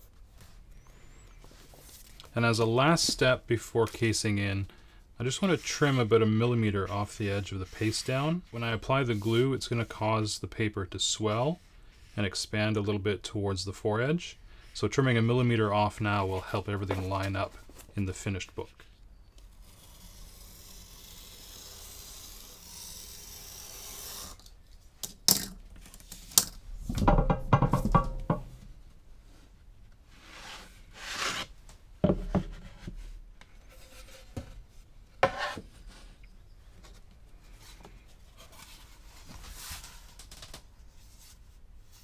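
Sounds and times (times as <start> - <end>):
knife slicing paper: 19.6 - 24.4
wooden boards knocking: 26.9 - 28.6.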